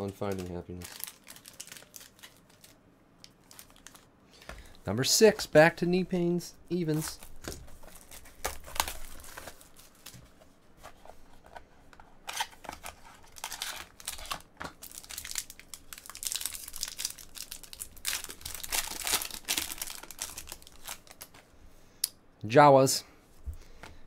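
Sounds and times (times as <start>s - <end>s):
plastic wrap crinkling and tearing: 0.0s - 4.1s, 7.0s - 10.2s, 12.3s - 21.4s.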